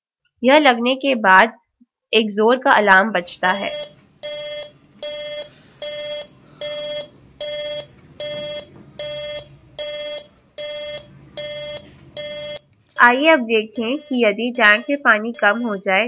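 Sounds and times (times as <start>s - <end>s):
fast repeated alarm beeps: 3.4s - 16.0s.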